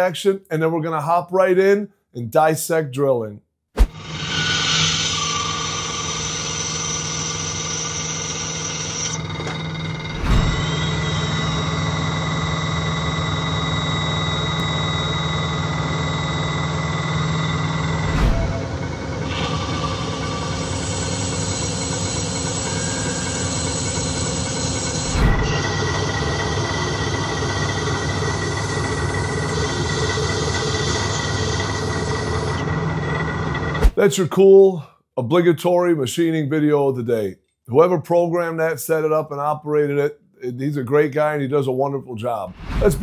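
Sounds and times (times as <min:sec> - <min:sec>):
drill cutting hiss: 0:03.9 - 0:33.9
high machine whines: 0:03.9 - 0:34.0
lathe machine hum: 0:04.0 - 0:33.8.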